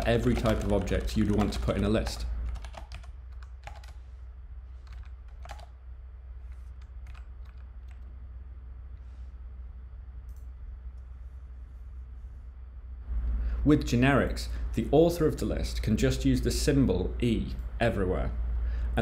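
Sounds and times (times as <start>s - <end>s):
keyboard keystrokes: 0.0s - 4.0s, 4.9s - 5.7s, 6.8s - 8.0s
steady low hum: 0.0s - 19.0s.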